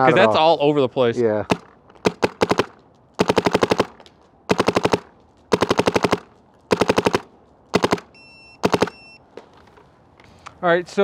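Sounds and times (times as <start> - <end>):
paintball marker firing: 1.5 - 9.0.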